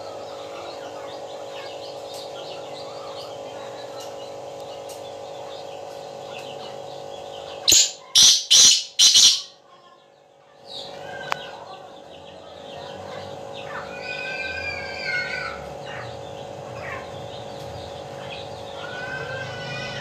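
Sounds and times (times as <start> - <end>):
bird harsh loud calls: 0.0 - 9.6, 10.6 - 20.0
faint chirping: 0.0 - 20.0
steady background drone: 0.0 - 20.0.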